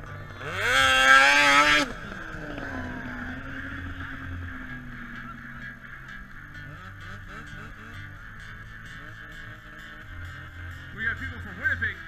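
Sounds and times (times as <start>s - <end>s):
snowmobile engine revving: 0.0s - 12.0s
snowmobile engine running: 0.0s - 12.0s.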